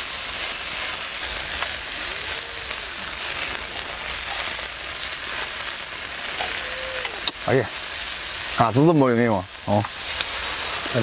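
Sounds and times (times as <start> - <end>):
meat sizzling on a griddle: 0.0 - 11.0.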